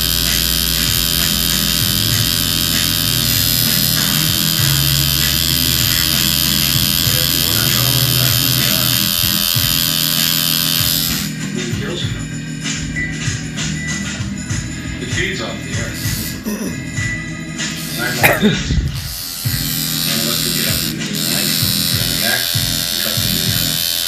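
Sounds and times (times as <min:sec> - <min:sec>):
tattoo machine buzzing: 0:00.0 - 0:11.4, 0:15.8 - 0:16.4, 0:17.6 - 0:24.0
background music with bass line: 0:00.0 - 0:24.0.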